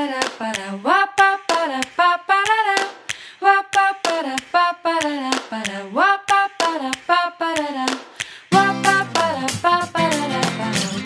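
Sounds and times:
person scat singing: 0.0 - 11.0.

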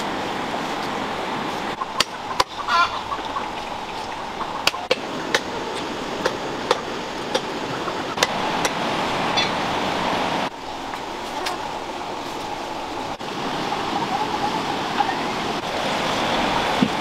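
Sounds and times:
river rushing: 0.0 - 17.0
chicken clucking: 1.8 - 4.9, 13.7 - 15.3.

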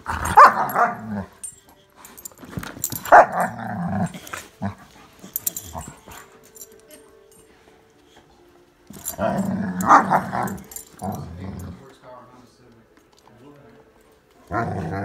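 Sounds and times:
dogs growling: 0.0 - 7.5, 8.1 - 12.0, 14.3 - 15.0.

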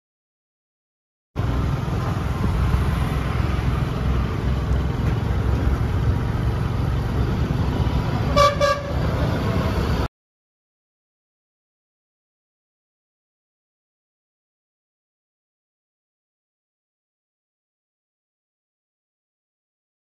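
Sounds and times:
wind and road noise rumble: 1.4 - 10.1
vehicle horn honks: 8.3 - 9.1.

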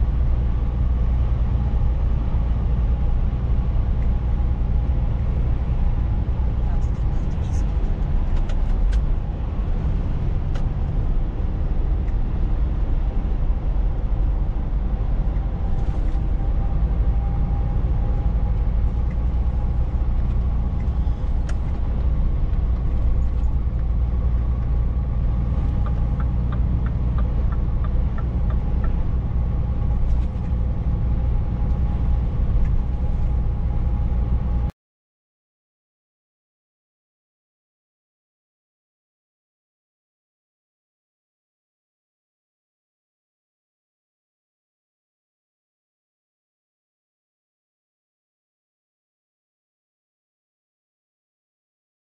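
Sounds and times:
truck engine and tyre rumble: 0.0 - 34.7.

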